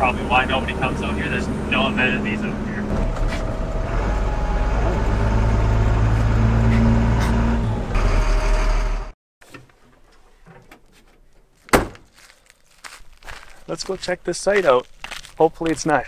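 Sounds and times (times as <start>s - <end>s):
road noise: 0.0s - 9.2s, 11.5s - 16.0s
truck diesel engine droning: 0.0s - 9.2s.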